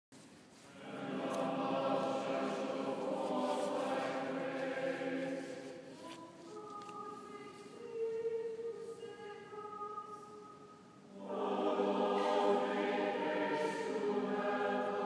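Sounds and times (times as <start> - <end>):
choir singing chant-like chords: 0.7 - 6.0, 11.1 - 15.0.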